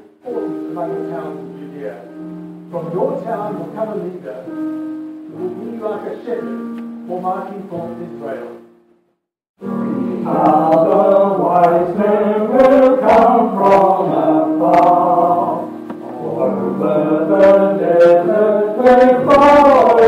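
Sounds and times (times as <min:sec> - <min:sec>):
choir singing held chords: 0:09.6 - 0:20.0.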